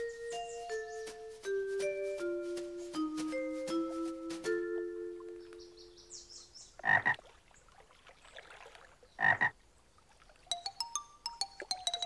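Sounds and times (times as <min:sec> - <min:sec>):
ringing mallet percussion notes: 0:00.0 - 0:06.1, 0:10.5 - 0:12.0
light plinking notes: 0:00.0 - 0:06.3, 0:10.5 - 0:12.0
cartoon frog croaking: 0:06.8 - 0:07.2, 0:09.2 - 0:09.5.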